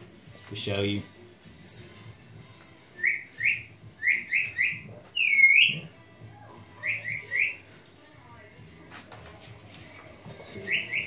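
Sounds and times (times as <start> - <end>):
bird chirping: 1.6 - 2.1, 3.0 - 5.9, 6.8 - 7.6, 10.6 - 11.0.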